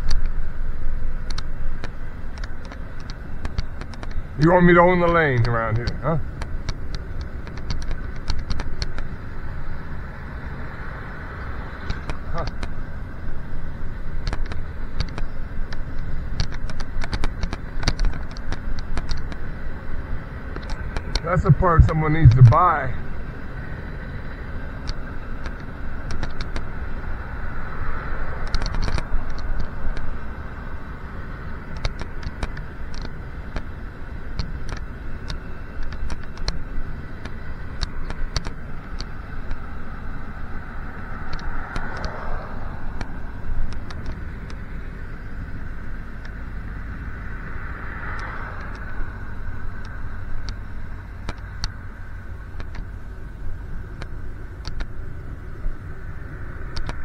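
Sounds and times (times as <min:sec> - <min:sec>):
motor vehicles passing: 0:00.0 - 0:57.0
wind and tyre rumble: 0:00.0 - 0:57.0
bicycle clicks and rattles: 0:05.4 - 0:09.2, 0:11.8 - 0:19.5, 0:24.7 - 0:27.1, 0:27.8 - 0:30.6, 0:31.2 - 0:44.6, 0:53.8 - 0:57.0.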